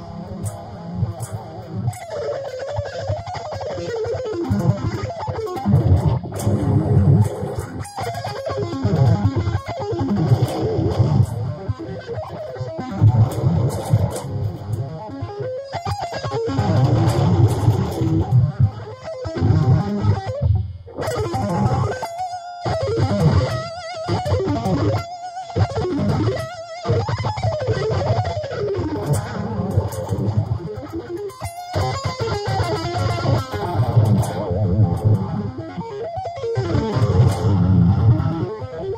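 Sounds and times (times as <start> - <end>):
electric guitar shredding: 0.0 - 38.9.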